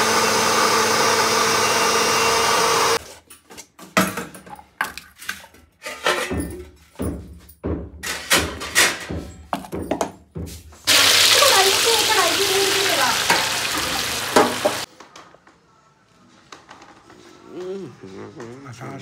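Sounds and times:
small appliance motor whirring: 0:00.0 - 0:03.0
kitchen utensils clattering: 0:03.1 - 0:10.3, 0:10.9 - 0:14.9.

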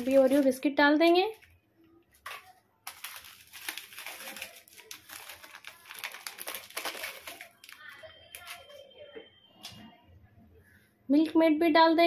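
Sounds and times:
plastic packets crinkling: 0:00.0 - 0:08.8.

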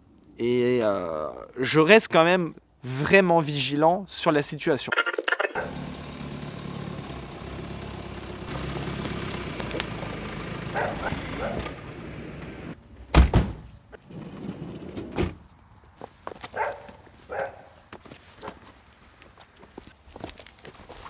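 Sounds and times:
loud thump: 0:13.1 - 0:13.7.

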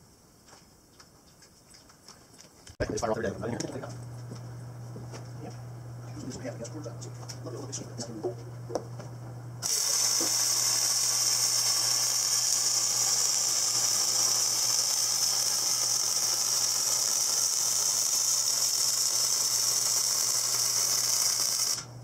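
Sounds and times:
low electrical hum: 0:00.1 - 0:22.0
arc welding hissing sizzle: 0:09.6 - 0:22.0.

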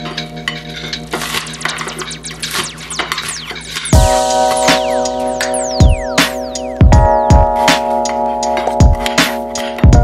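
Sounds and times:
electronic dance music: 0:02.2 - 0:07.9.

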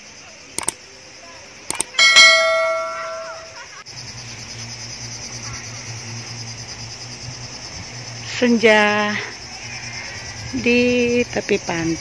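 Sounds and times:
crickets chirring: 0:00.0 - 0:12.0
bell-like chime: 0:02.0 - 0:03.6.

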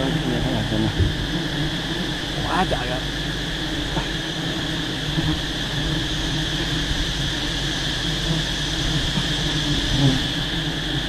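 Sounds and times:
swarm of bees buzzing: 0:00.0 - 0:11.0.

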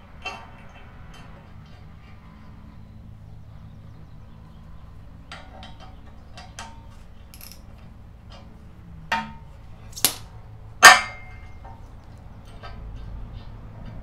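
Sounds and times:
metal bolt and washer clicking: 0:07.4 - 0:07.6.

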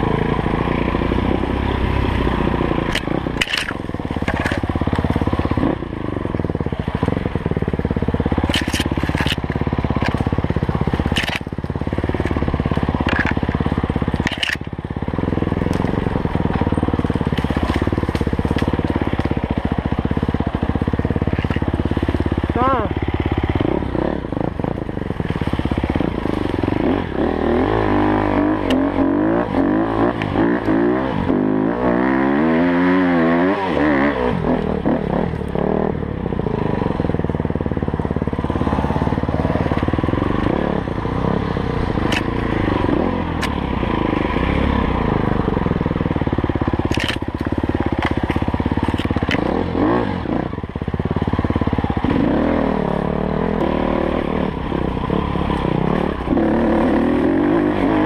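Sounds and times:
dirt bike engine revving: 0:00.0 - 0:58.0
sharp clicks and knocks: 0:02.8 - 0:05.1, 0:08.4 - 0:14.8, 0:21.2 - 0:21.8, 0:42.0 - 0:42.4, 0:46.8 - 0:49.6.

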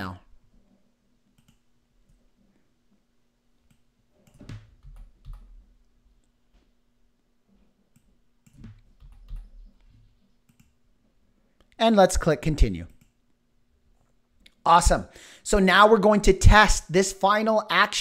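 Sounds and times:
computer mouse clicks: 0:01.3 - 0:02.2, 0:03.6 - 0:05.5, 0:07.9 - 0:10.8.

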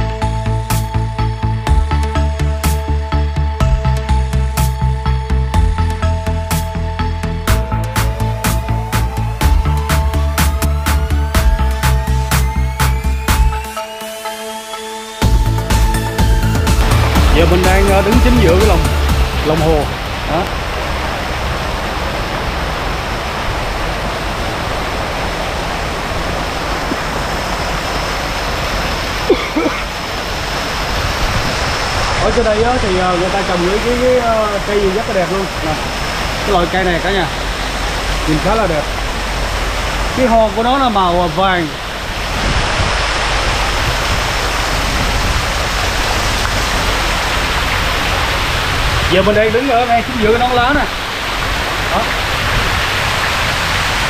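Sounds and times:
fountain jets splashing into pond: 0:16.8 - 0:54.0.

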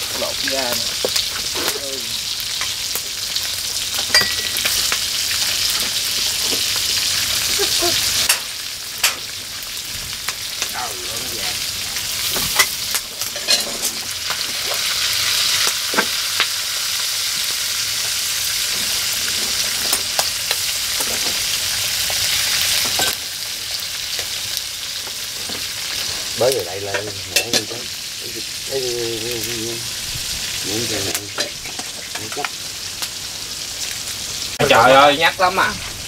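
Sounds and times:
food sizzling in hot oil: 0:00.0 - 0:36.0.

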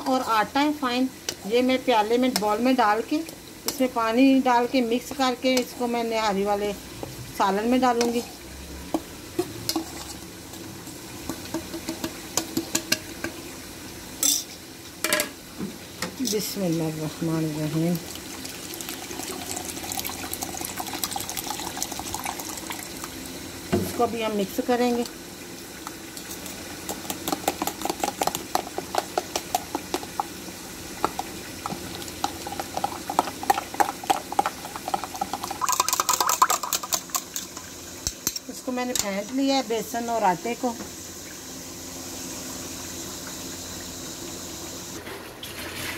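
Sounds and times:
spoon scraping: 0:09.7 - 0:10.2.

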